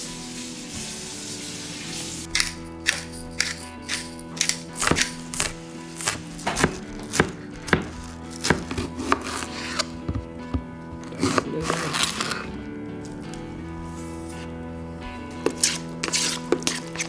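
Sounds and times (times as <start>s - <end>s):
background music: 0.0s - 17.0s
knife chopping on cutting board: 4.4s - 10.6s.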